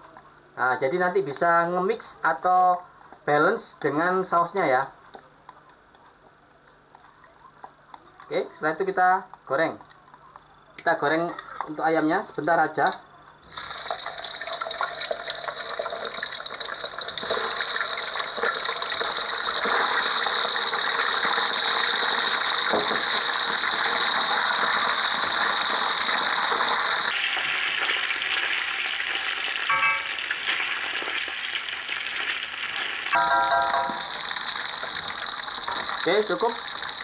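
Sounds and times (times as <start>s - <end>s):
oil sizzling in a wok: 13.4s - 37.0s.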